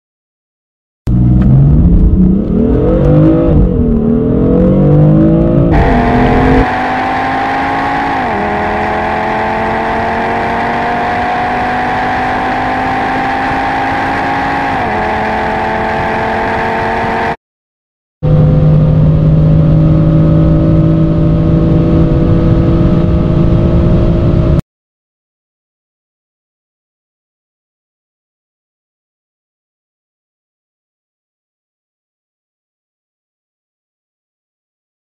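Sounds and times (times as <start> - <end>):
car engine accelerating steadily: 1.1 - 17.4, 18.2 - 24.6
car engine revving hard: 1.2 - 17.4, 18.3 - 24.6.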